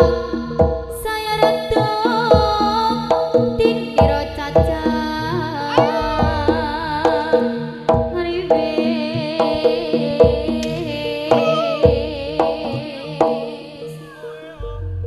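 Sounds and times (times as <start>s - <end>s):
drum strokes: 0.0s - 13.7s
wavering melody line: 5.6s - 7.8s, 9.8s - 15.0s.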